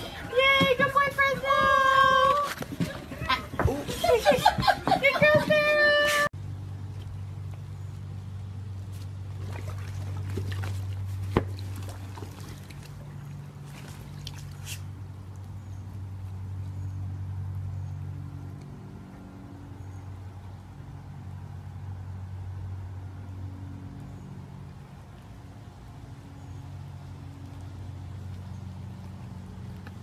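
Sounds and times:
water splashing and trickling: 0.0s - 6.0s, 6.6s - 17.6s.

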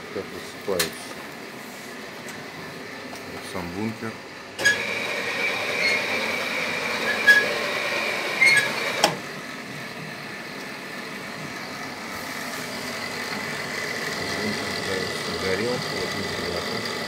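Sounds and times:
boiler motor whine: 0.0s - 17.0s
steady hum: 9.1s - 17.0s.

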